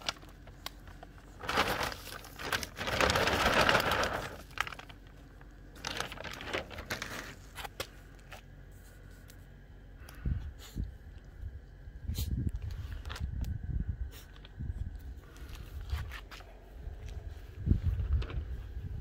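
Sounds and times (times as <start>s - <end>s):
puppy digging in loose soil: 0.0s - 9.4s.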